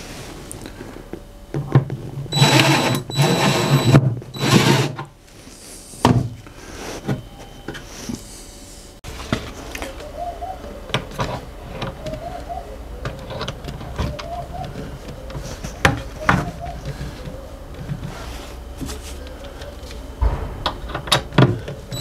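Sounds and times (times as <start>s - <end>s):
cordless drill motor whine: 2.3s - 5.0s.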